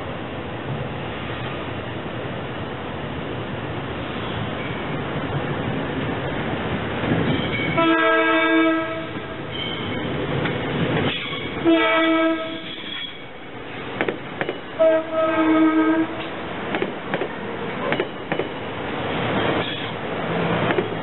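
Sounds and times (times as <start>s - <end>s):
train wheels rumbling: 0.0s - 21.0s
train horn blasts: 7.7s - 9.4s, 11.6s - 13.1s, 14.8s - 16.3s.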